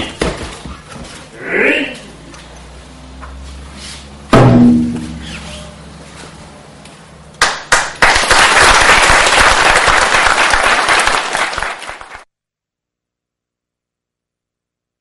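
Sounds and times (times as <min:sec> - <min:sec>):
audience applauding: 0:07.4 - 0:12.3.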